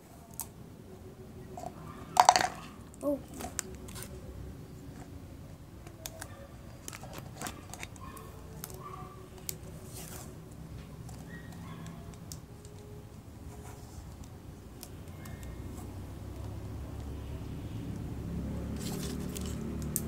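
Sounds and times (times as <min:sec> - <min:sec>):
plastic cup clicks and crinkles: 0:01.6 - 0:02.7, 0:05.9 - 0:09.6.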